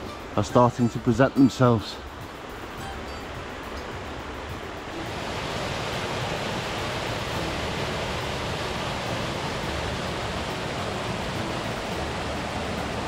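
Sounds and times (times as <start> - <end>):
stream cascading over rocks: 0.0 - 13.0.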